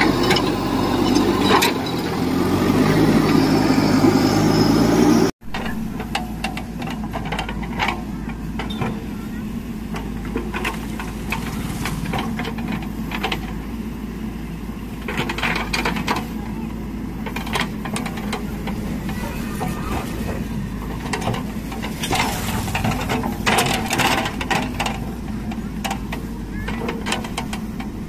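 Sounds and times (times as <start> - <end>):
diesel engine running: 0.0 - 28.0
soil and stones scraping: 10.1 - 13.6, 17.2 - 28.0.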